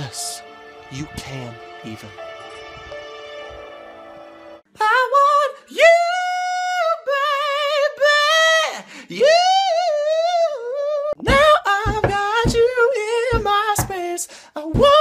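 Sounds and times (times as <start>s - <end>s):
person singing unaccompanied: 4.7s - 15.0s.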